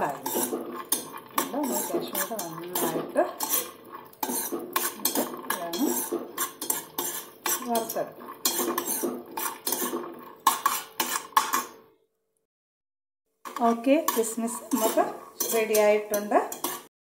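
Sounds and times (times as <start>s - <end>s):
utensil scraping a frying pan: 0.0s - 11.9s, 13.5s - 16.9s.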